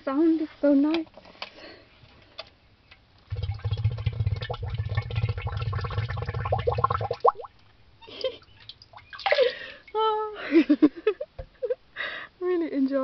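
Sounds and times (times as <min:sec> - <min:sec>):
bottle gurgling under water: 0:03.3 - 0:07.5.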